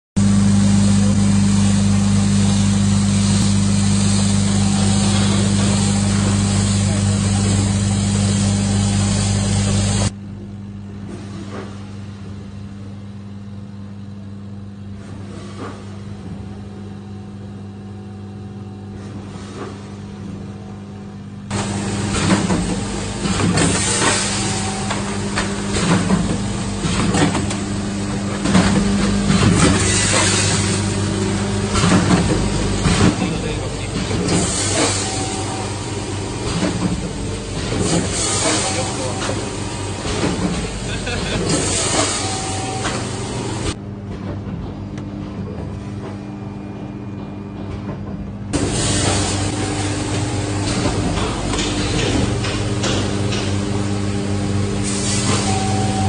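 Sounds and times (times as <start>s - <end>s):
packing machine hum: 0.2s - 56.0s
sealing machine hisses and clacks: 21.5s - 43.8s, 48.6s - 56.0s.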